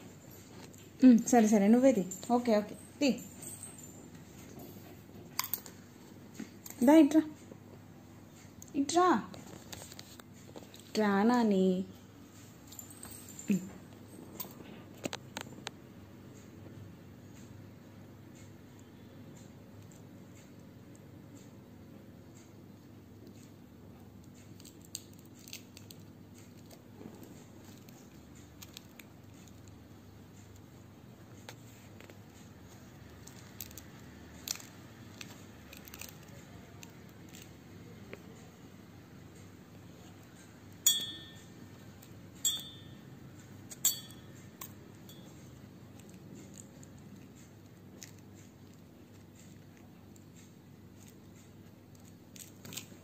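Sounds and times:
low steady hum: 0.0 - 53.0
steel bowl clinking: 40.8 - 41.6, 42.4 - 43.0, 43.7 - 44.3.

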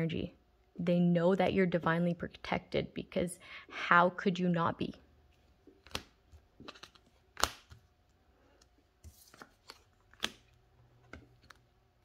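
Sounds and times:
cards rustling: 5.4 - 11.7
cards clicking and tapping: 5.7 - 7.9, 8.5 - 11.6.

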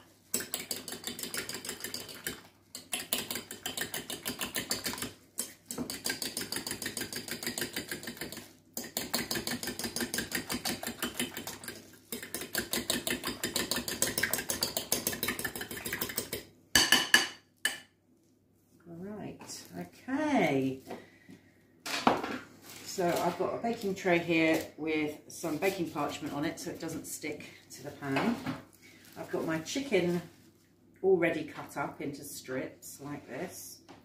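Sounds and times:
utensil clicking against bowl: 0.3 - 16.4.

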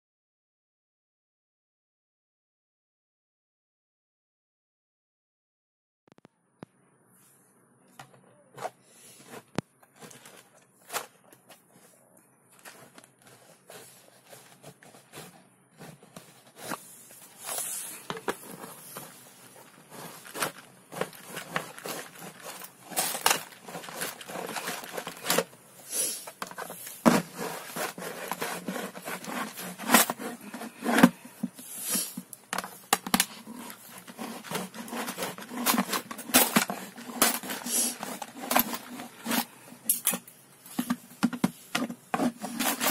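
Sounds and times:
knife scraping and cracking plastic: 8.0 - 12.0, 12.6 - 25.6, 26.2 - 42.9.

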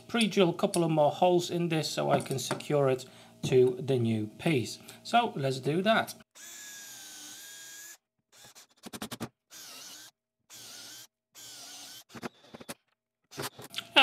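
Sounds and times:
cordless drill motor whine: 6.3 - 8.8, 9.5 - 12.6.

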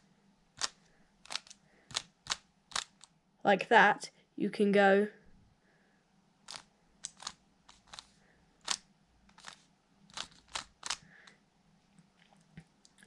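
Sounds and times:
puzzle cube layers clacking: 0.5 - 3.2, 6.4 - 11.3.

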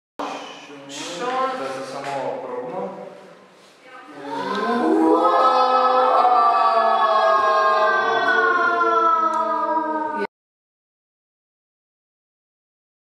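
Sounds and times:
children singing: 4.1 - 10.3.

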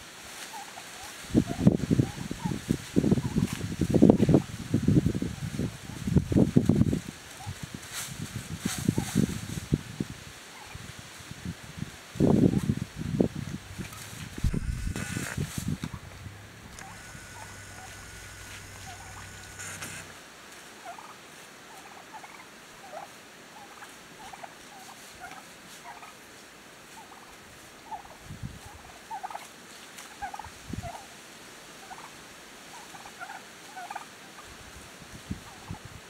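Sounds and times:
turkeys calling: 10.5 - 10.8, 12.4 - 20.2, 20.8 - 26.1
low hum with high whine: 12.8 - 20.5.

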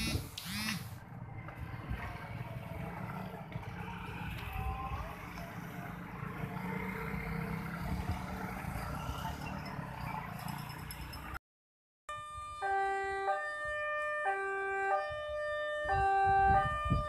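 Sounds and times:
motorcycles riding past: 0.0 - 11.4.

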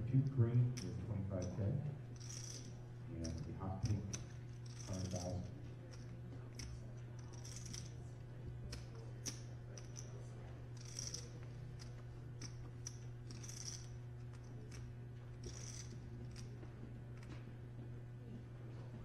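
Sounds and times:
steady low hum: 0.0 - 19.0
chip riffles rattling: 0.8 - 8.0, 9.2 - 14.8, 15.4 - 16.6
poker chips clicking: 2.2 - 7.9, 10.8 - 16.5.

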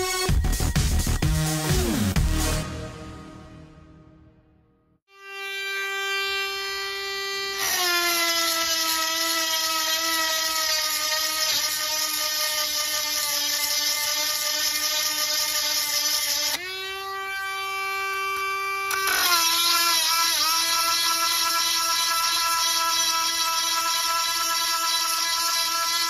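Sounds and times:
rotary tool whine: 5.2 - 26.0.

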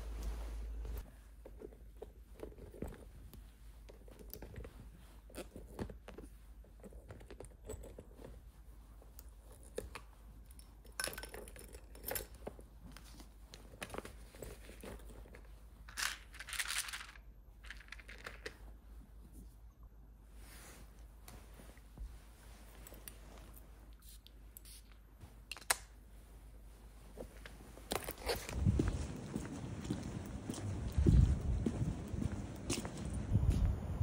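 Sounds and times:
handbag rustling: 26.8 - 33.3.

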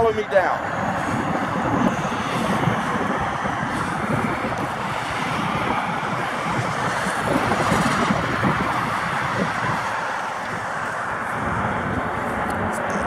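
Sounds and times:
road traffic rushing: 0.0 - 13.0.

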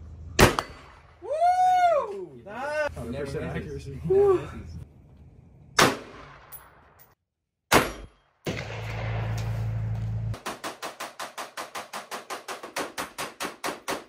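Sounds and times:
rifle shots: 0.4 - 1.0, 5.8 - 6.5, 7.7 - 14.0.

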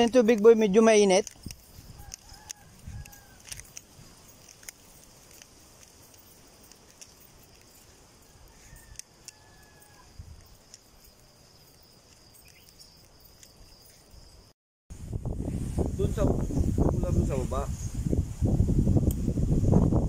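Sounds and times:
light clicks: 0.0 - 7.9
high-pitched insect buzz: 0.0 - 14.5.

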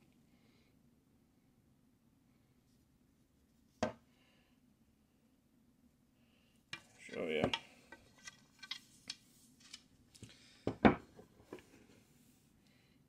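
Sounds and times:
bow limbs knocking on tabletop: 3.8 - 4.0, 10.7 - 11.1.

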